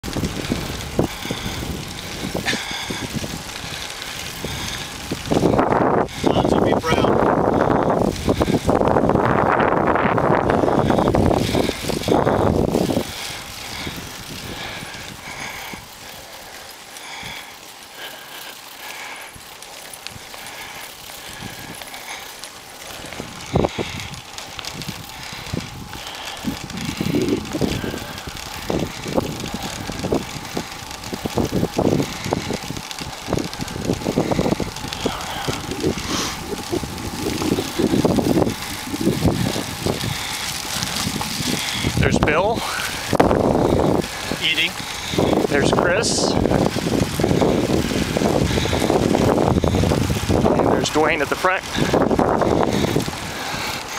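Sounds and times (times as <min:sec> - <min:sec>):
tyres hissing on road: 0:00.0 - 0:53.9
wind buffeting microphone: 0:00.0 - 0:53.9.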